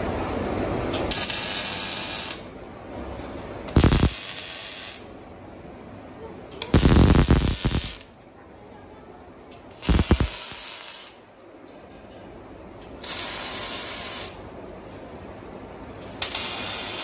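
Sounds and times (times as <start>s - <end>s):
arc welding hiss: 1.1s - 2.5s, 3.7s - 5.1s, 6.7s - 8.0s, 9.7s - 11.2s, 13.0s - 14.4s, 16.2s - 17.0s
steady machine noise: 3.7s - 4.4s, 6.7s - 8.0s, 9.8s - 10.7s.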